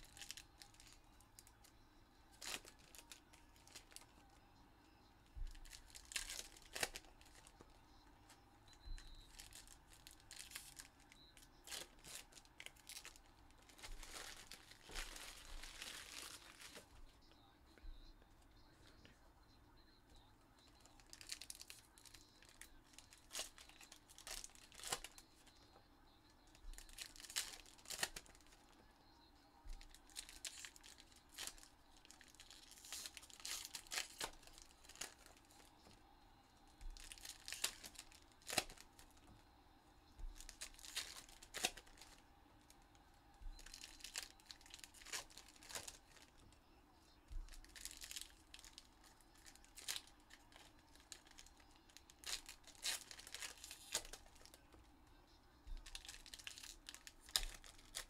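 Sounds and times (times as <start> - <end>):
foil wrappers tearing and crinkling: 0.0 - 1.6, 2.4 - 4.2, 5.4 - 7.6, 9.3 - 16.9, 20.7 - 25.5, 26.5 - 28.7, 29.7 - 36.0, 36.8 - 39.2, 40.2 - 42.2, 43.4 - 46.3, 47.3 - 54.6, 55.7 - 58.0
cards being handled: 9.2 - 17.2, 36.7 - 39.4, 55.7 - 58.0.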